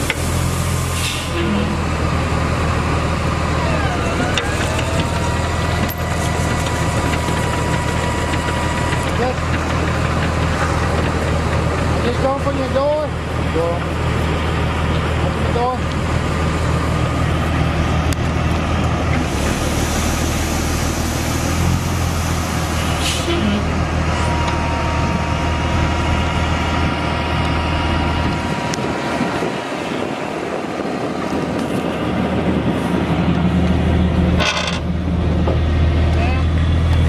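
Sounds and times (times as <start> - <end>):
diesel engine droning: 0.0 - 37.0
high whine: 15.8 - 37.0.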